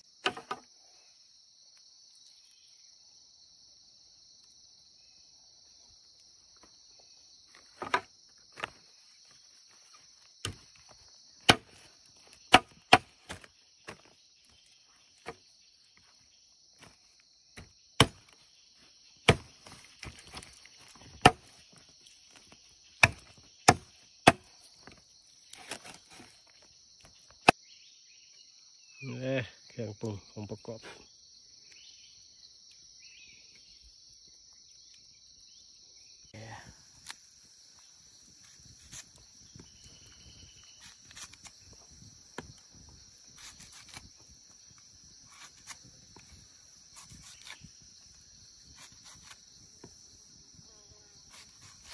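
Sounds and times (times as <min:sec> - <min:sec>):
knife chopping on a leaf: 0:11.4 - 0:14.1, 0:17.6 - 0:18.4, 0:19.2 - 0:21.6, 0:23.0 - 0:26.3, 0:43.4 - 0:44.2, 0:45.3 - 0:46.3, 0:46.9 - 0:47.7, 0:48.6 - 0:50.0, 0:51.2 - 0:51.9.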